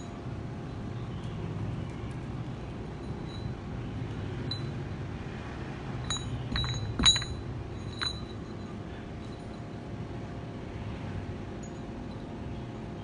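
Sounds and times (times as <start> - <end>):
steady low hum: 0.0 - 13.0
metal weights clinking: 6.1 - 9.6.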